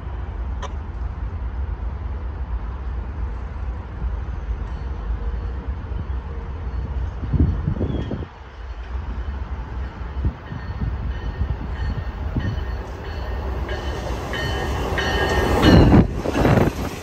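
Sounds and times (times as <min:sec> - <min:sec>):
train rumble: 0:00.0 - 0:17.0.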